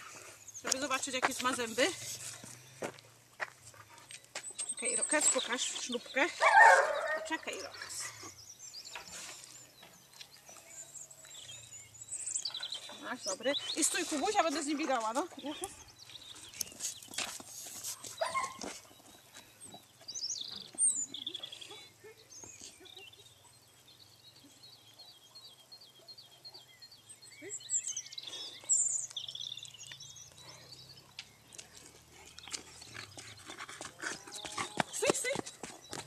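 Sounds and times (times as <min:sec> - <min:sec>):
footsteps on dirt track: 0:00.0 - 0:07.0, 0:09.2 - 0:11.8, 0:12.4 - 0:21.3, 0:29.2 - 0:36.0.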